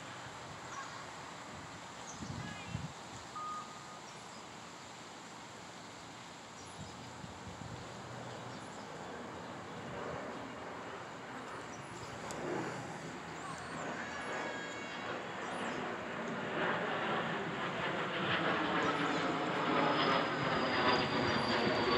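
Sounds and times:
outdoor background noise: 0.0s - 21.9s
brief high tone: 3.4s - 4.0s.

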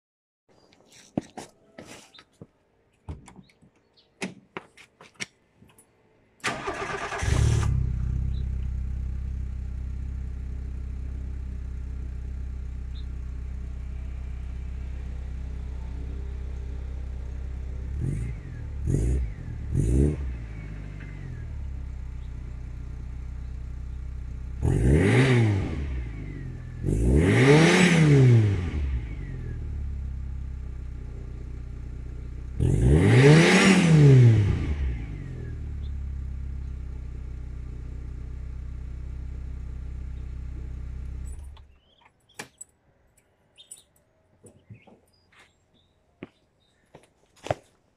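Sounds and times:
car engine idling and revving: 6.5s - 42.0s.

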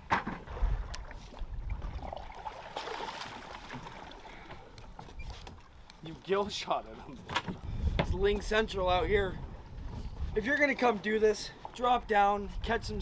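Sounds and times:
water splashing against boat: 0.0s - 8.6s.

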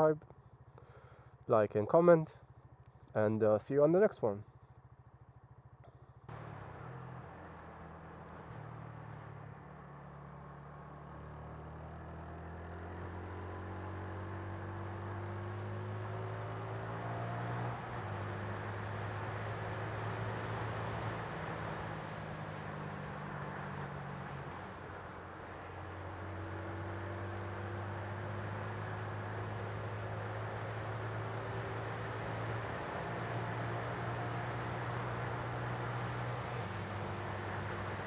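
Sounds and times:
road noise: 3.9s - 38.0s
motorcycle engine running: 4.4s - 11.8s.

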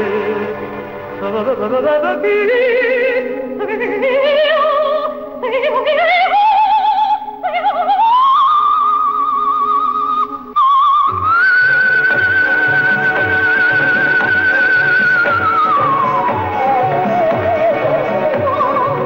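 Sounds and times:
sustained instrumental accompaniment: 0.0s - 2.7s, 11.5s - 19.0s
soprano singing with vibrato: 0.0s - 19.0s.

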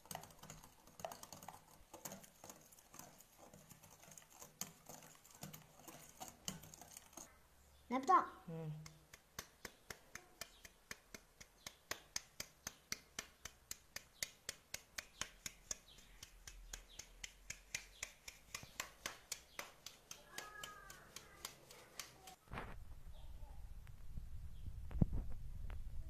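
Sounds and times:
utensil clicking against bowl: 8.8s - 22.3s.

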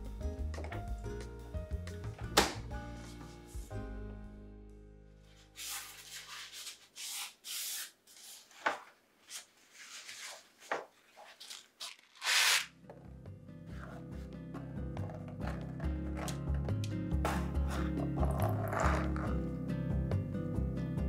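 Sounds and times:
kitchen paper rustling: 5.4s - 12.7s.

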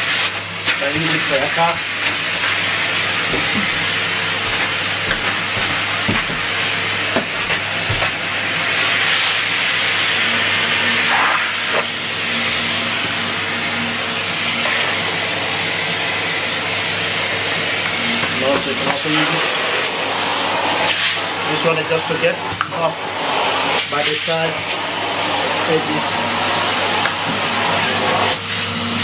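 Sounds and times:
vacuum cleaner airflow hiss: 0.0s - 29.0s.

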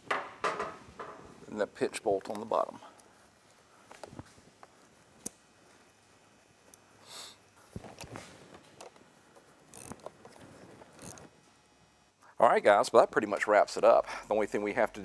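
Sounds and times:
short breathy hiss: 7.0s - 7.4s
screwdriver and metal parts clicking: 9.7s - 10.1s.

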